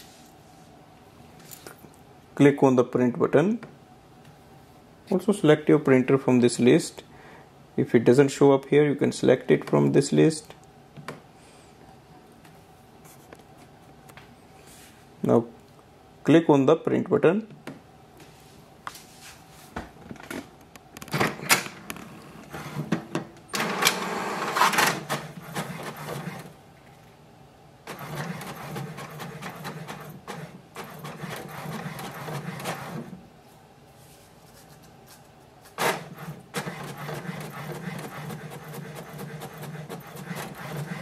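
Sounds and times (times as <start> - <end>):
inkjet printer whirring and rattling: 21.2 - 26.6, 27.9 - 33.2, 35.8 - 41.0
printer clicks: 23.5 - 26.4, 35.8 - 41.0.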